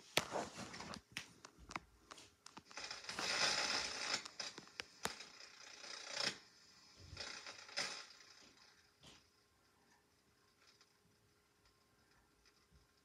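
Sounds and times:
tape mechanism clicking: 2.4s - 6.5s.

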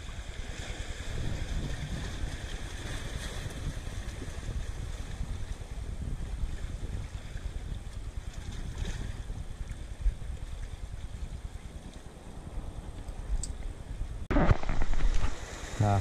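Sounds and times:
wind buffeting microphone: 0.0s - 16.0s
waves washing: 9.8s - 16.0s.

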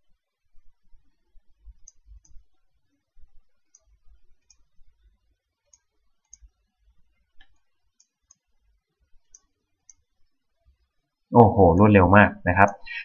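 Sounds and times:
computer mouse clicks: 1.7s - 2.6s, 3.6s - 4.7s, 5.6s - 6.6s, 7.4s - 8.5s, 9.2s - 10.1s.

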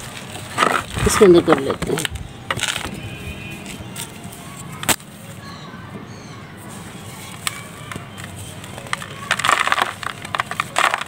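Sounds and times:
dried clay snapping: 4.8s - 5.1s, 7.3s - 11.0s
clay crumbling with crackly crunch: 7.2s - 11.0s.

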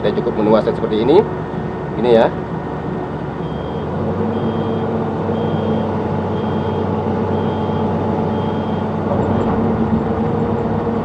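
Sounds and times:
excavator engine and hydraulics: 0.0s - 11.0s
short high beep: 3.4s - 8.9s.

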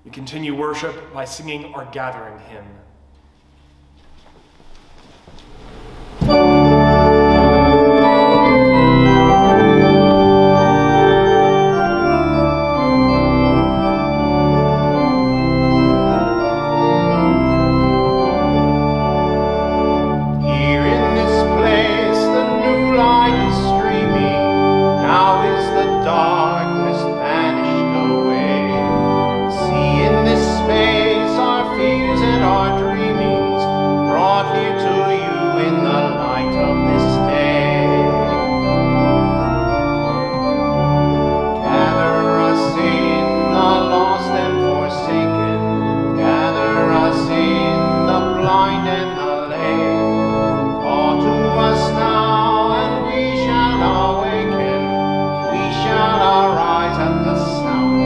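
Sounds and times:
church organ playing a hymn: 0.0s - 4.3s, 5.0s - 58.0s
person singing with vibrato: 20.4s - 38.9s, 41.5s - 58.0s.

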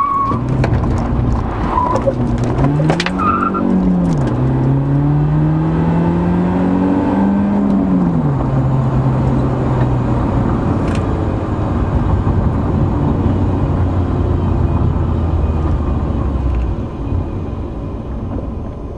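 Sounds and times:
road and tyre noise: 0.0s - 18.9s
car engine running: 0.3s - 18.9s.

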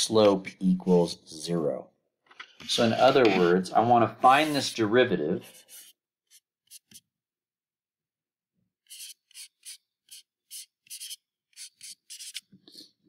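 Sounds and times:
stylus scratching on tablet: 2.8s - 3.6s, 4.2s - 4.8s, 5.4s - 7.1s, 8.8s - 12.9s.

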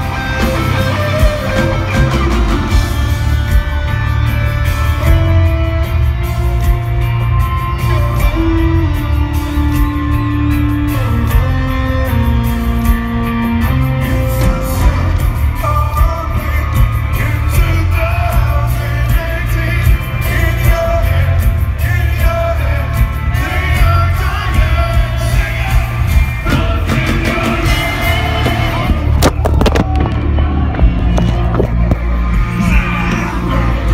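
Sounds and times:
live rock band playing: 0.0s - 33.9s
sung vocals: 13.8s - 29.4s, 32.2s - 33.9s
booming bass and drums: 23.0s - 33.9s.

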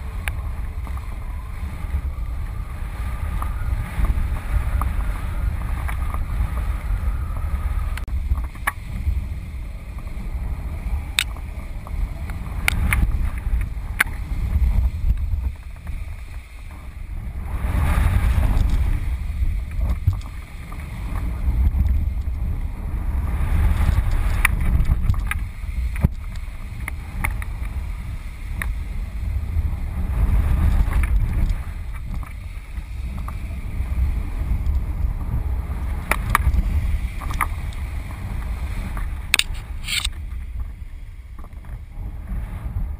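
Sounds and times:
wind buffeting microphone: 0.0s - 42.9s
sharp clicks: 39.3s - 40.1s.

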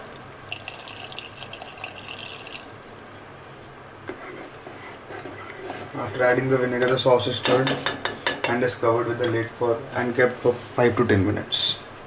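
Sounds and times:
liquid pouring into sauce: 0.0s - 3.8s
faint stirring: 0.0s - 9.4s.

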